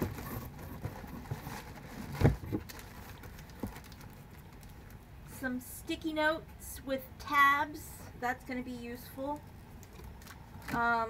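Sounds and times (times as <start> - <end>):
thump in cardboard box: 0.0 - 2.7
plastic packaging rustling: 0.0 - 5.2, 9.7 - 11.0.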